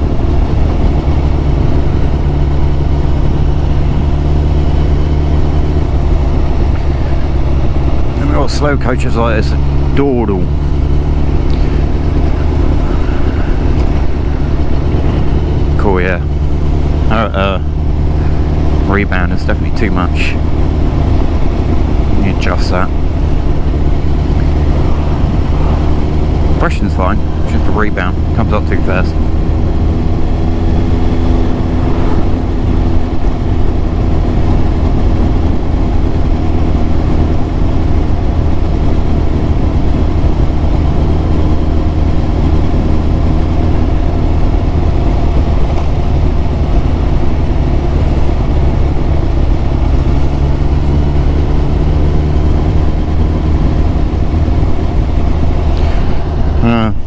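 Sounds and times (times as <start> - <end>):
wind noise: 0.0 - 8.9, 10.4 - 19.1, 19.9 - 57.0
motorcycle engine running: 0.0 - 57.0.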